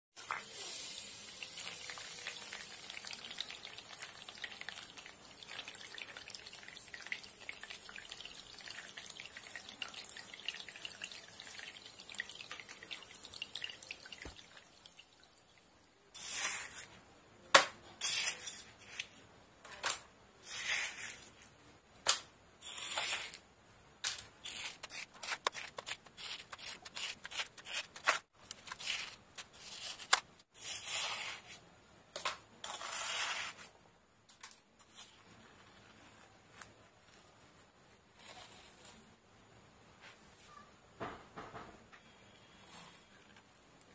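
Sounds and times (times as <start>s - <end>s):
trowel scraping wet mud: 24.4s - 31.5s.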